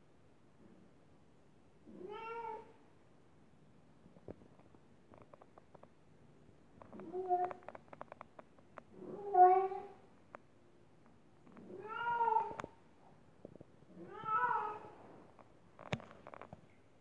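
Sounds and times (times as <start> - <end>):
cat meowing: 11.7 - 12.6, 14.0 - 14.9.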